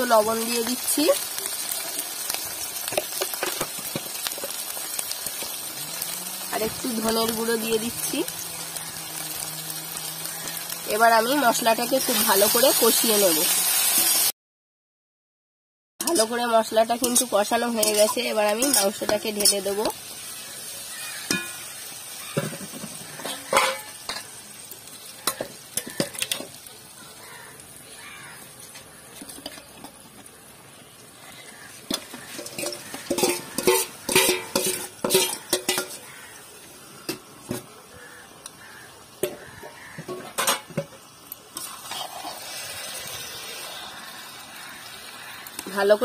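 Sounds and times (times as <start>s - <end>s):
spices sizzling in hot oil: 0.0s - 14.3s, 16.0s - 46.0s
metal spatula scraping a pan: 16.0s - 20.4s, 21.0s - 24.4s, 25.2s - 26.6s, 28.6s - 30.0s, 31.2s - 36.2s, 39.2s - 40.9s, 41.6s - 44.8s.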